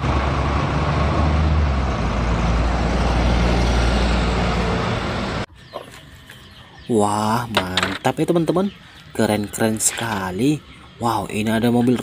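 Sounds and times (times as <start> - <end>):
bus engine humming: 0.0 - 5.5
traffic noise: 0.0 - 12.0.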